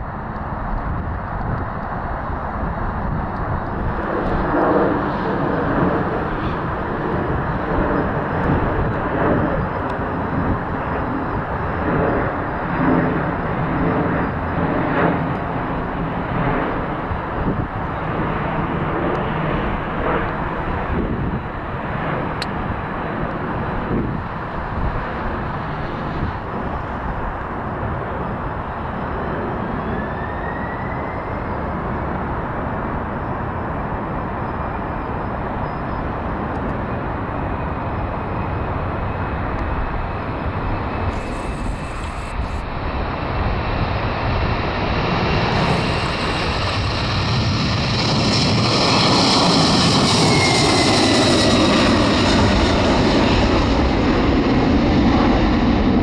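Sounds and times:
jet engines rumbling: 0.0 - 56.0.

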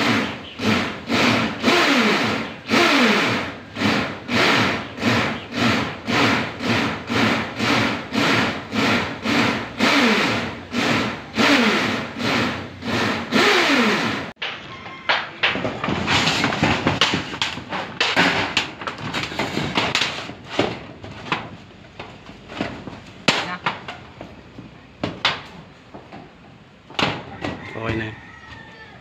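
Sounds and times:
hand saw sawing: 0.0 - 14.4.

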